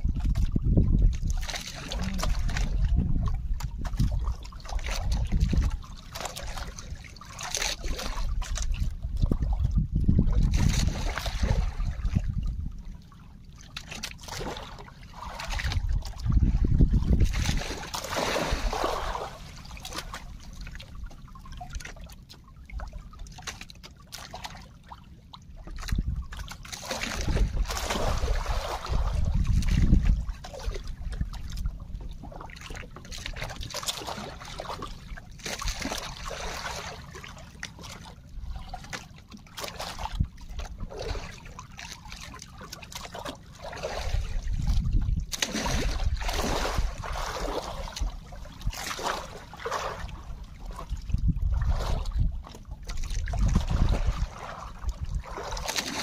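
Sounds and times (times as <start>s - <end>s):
wind rumbling on microphone: 0.0s - 7.2s, 7.8s - 13.1s, 15.3s - 21.7s, 25.6s - 35.0s, 39.9s - 41.4s, 43.8s - 55.7s
water splashing against boat hull: 0.0s - 56.0s.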